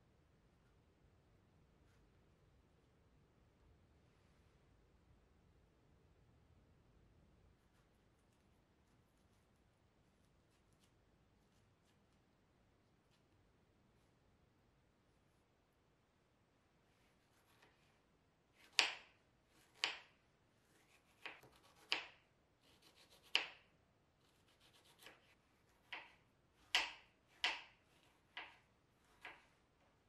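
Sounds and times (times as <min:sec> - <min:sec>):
knife tapping cutting board: 0:18.6 - 0:19.1, 0:19.8 - 0:20.1, 0:21.2 - 0:22.2, 0:25.8 - 0:28.6, 0:29.2 - 0:29.5.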